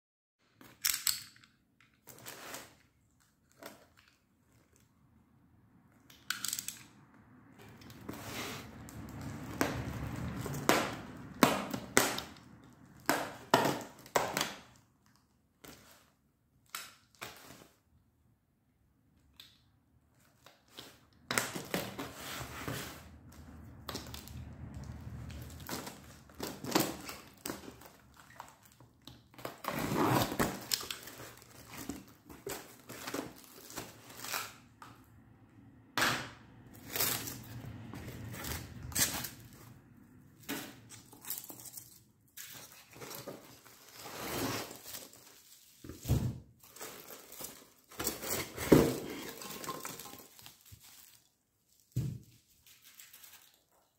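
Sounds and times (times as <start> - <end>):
packing tape tearing: 25.6 - 34.7, 40.4 - 45.9
plastic film crinkling: 46.6 - 53.9.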